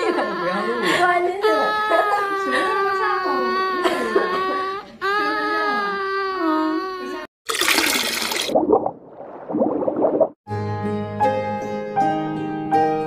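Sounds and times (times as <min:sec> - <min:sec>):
liquid splashing and gurgling: 0:07.5 - 0:10.4.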